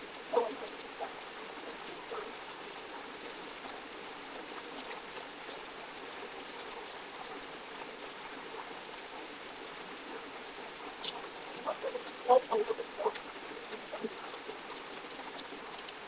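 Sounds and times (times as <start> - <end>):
stream of water rushing: 0.0 - 16.0.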